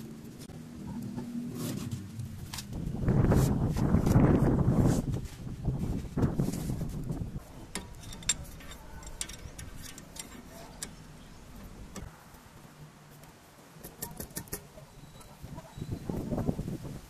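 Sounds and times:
metallic clicks of a wrench: 7.8 - 11.0.

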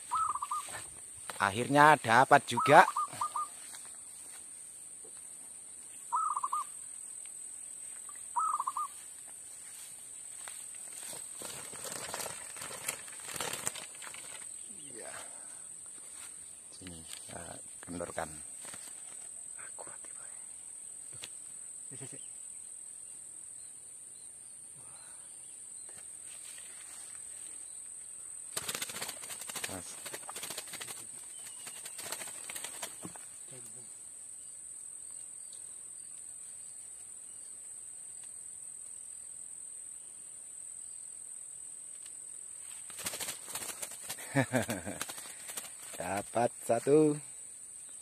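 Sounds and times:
dove cooing: 0.0 - 0.9, 2.6 - 3.6, 6.1 - 6.7, 8.4 - 9.0
rustling and fluttering: 9.7 - 14.7, 18.5 - 19.4, 28.5 - 33.4, 42.6 - 46.4.

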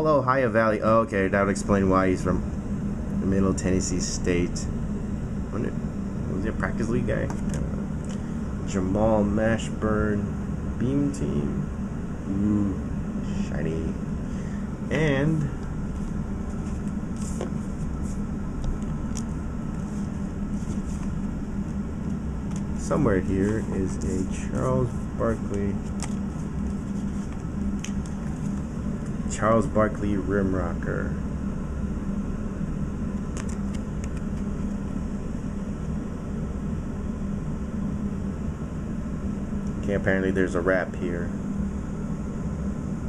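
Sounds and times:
low room hum: 0.0 - 43.0
trading cards rustling: 15.4 - 21.2, 22.4 - 29.1, 33.3 - 34.5
trading card clicks: 18.6 - 19.3, 25.5 - 28.7, 33.3 - 34.5.

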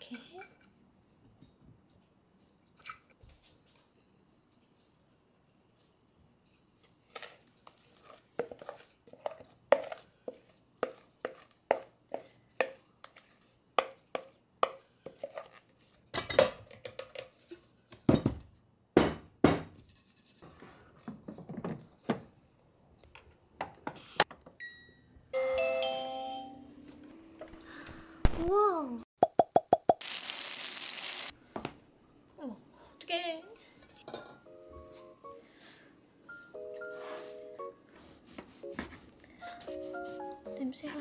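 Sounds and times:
spatula knocking and scraping bowl: 7.2 - 15.6
rice cooker beep: 24.6 - 26.5
rice cooker electronic chime: 24.6 - 26.6.

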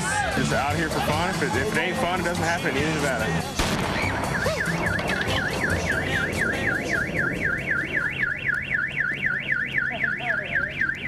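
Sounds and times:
car alarm wailing: 3.9 - 11.0.

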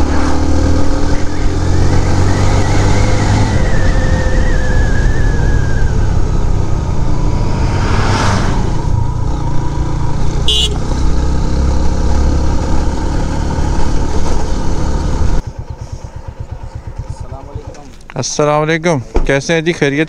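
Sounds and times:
truck rushing past: 0.0 - 15.8
motorcycle engine running: 8.9 - 18.9
high toot: 10.4 - 10.9
motorcycle idling: 13.7 - 19.1.

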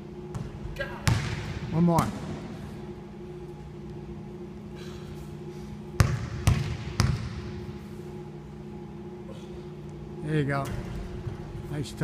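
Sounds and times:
steady low hum: 0.0 - 12.0
basketball bouncing on wooden floor: 0.3 - 1.4, 6.0 - 7.4.

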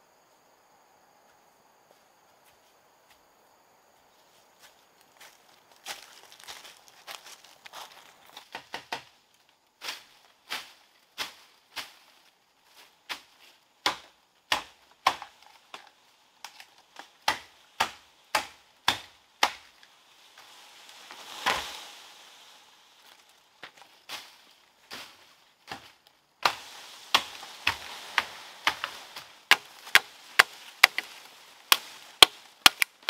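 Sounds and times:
machete chopping bamboo: 13.8 - 19.8, 25.7 - 33.0
rustling noise: 19.7 - 33.0.

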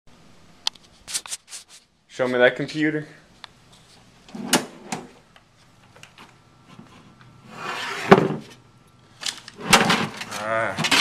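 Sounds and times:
case scraping on counter: 7.5 - 8.5
computer cases clunking and knocking: 9.2 - 11.0.

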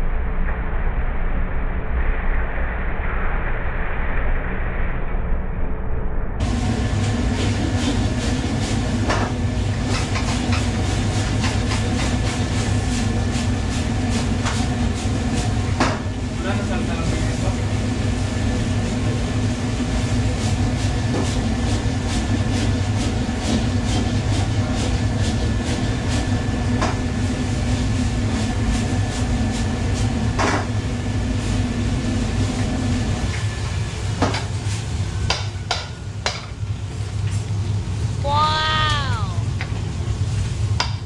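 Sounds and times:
gas burner roar: 6.4 - 41.0.

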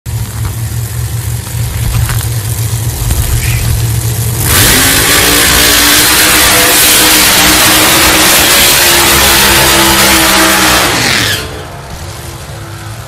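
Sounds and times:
drag car engines idling: 0.1 - 13.0
engine revving hard: 4.4 - 11.7.

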